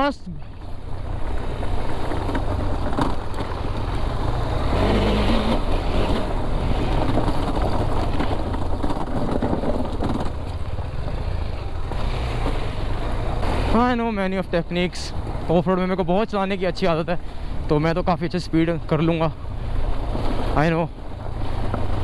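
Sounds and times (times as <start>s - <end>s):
motorcycle engine running: 0.6s - 14.1s
tyre noise on dirt: 1.1s - 14.0s.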